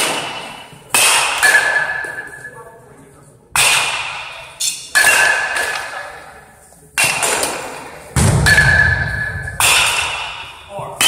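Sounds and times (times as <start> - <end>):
bat striking baseball: 0.0 - 2.5, 3.6 - 6.1, 7.0 - 10.7.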